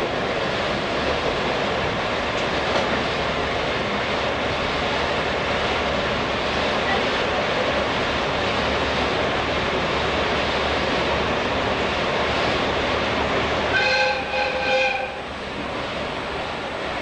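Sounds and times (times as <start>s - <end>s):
train coach running noise: 0.0s - 17.0s
train horn: 13.7s - 15.3s.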